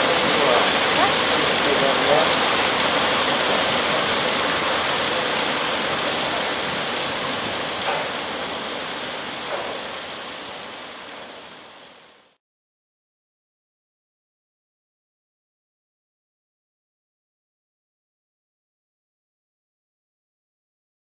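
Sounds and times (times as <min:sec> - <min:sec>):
water rushing: 0:00.0 - 0:12.4.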